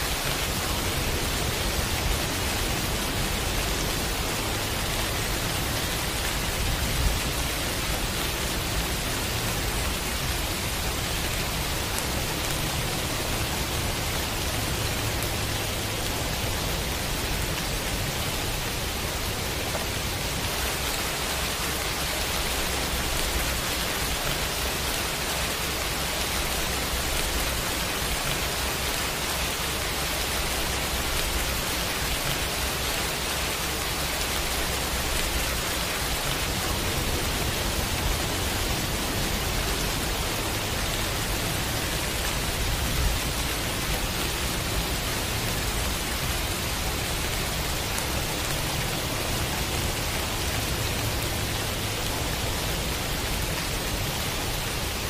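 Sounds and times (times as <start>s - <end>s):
heavy rain: 0.0s - 55.0s.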